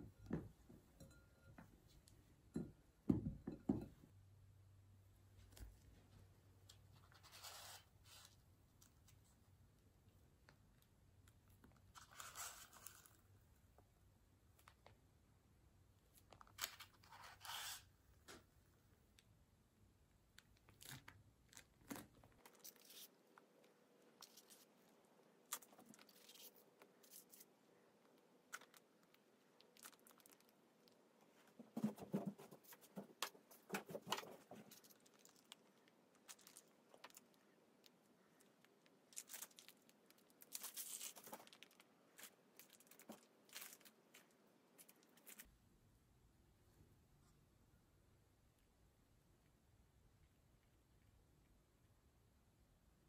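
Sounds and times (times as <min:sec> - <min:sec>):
plastic piping bag crinkling: 0:28.5 - 0:31.0, 0:34.7 - 0:45.5.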